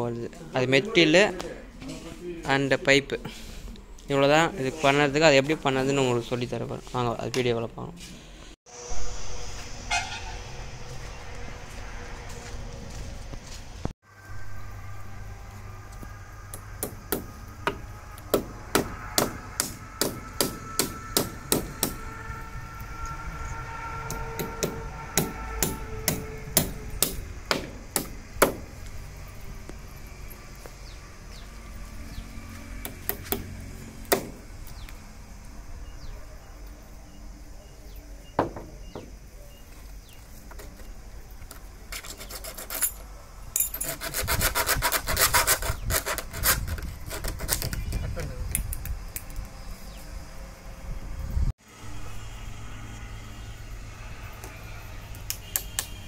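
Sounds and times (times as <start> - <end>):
rapid rasping scrapes: 41.9 - 43.1, 43.8 - 47.8.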